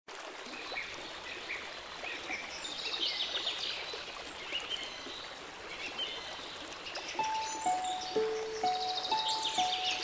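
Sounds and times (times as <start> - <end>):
outdoor background hiss: 5.2 - 10.0
birds chirping: 5.8 - 10.0.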